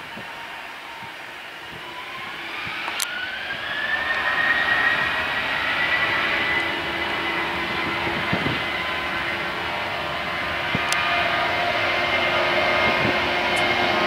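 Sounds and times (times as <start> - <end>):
jet engines spooling up: 0.0 - 14.0.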